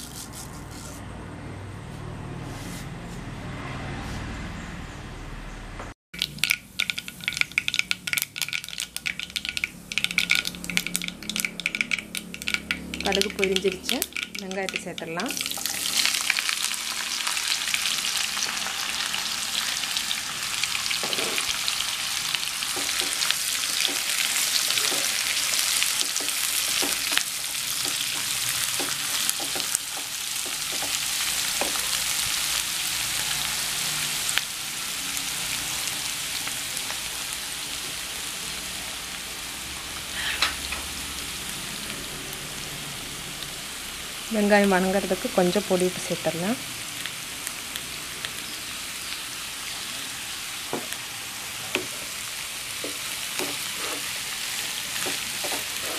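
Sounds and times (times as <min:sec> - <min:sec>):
onions sizzling in hot oil: 0:06.2 - 0:55.9
wooden spatula knocking on pan: 0:26.0 - 0:31.0, 0:31.6 - 0:31.9.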